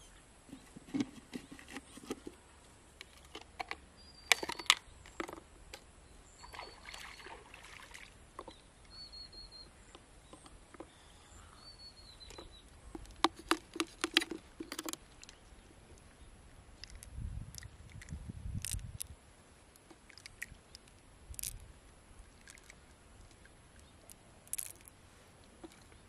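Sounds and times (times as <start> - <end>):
faint high chirps: 6.1 - 7.6, 8.4 - 12.7.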